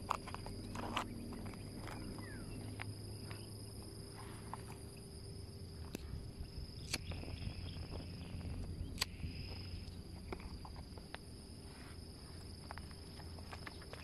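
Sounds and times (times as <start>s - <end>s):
high insect hum: 0.0s - 14.0s
sharp clicks: 6.8s - 7.2s, 8.4s - 11.2s.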